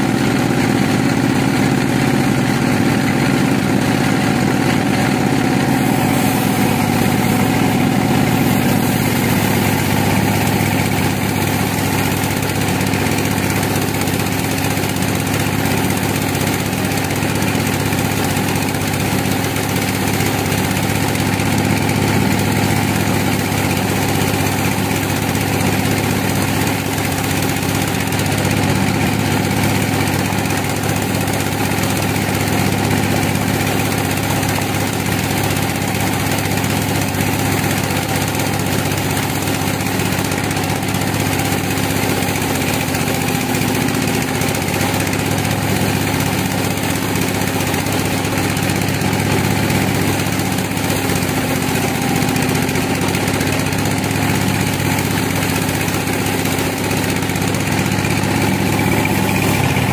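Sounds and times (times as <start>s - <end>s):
band saw drone: 4.2s - 30.6s, 57.2s - 59.9s
saw blade hiss cutting log: 4.8s - 59.9s.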